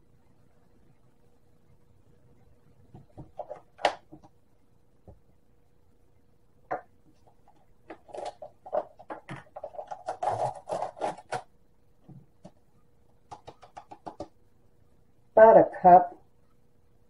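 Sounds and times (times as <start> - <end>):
containers clicking and tapping: 6.7 - 11.4, 13.3 - 14.4.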